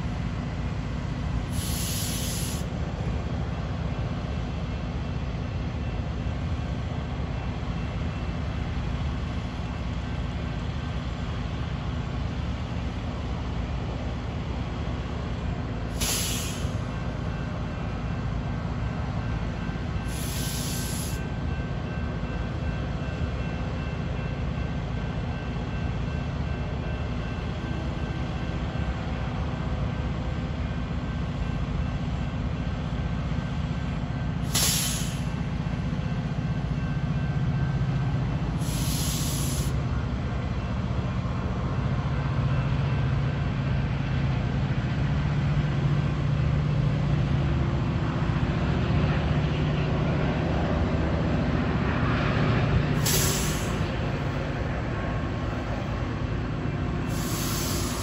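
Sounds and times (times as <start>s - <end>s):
train low rumble: 0.0s - 58.0s
air brake hisses: 1.5s - 2.7s, 15.9s - 16.9s, 20.1s - 21.3s, 34.4s - 35.4s, 38.6s - 39.8s, 53.0s - 53.9s, 57.1s - 58.0s.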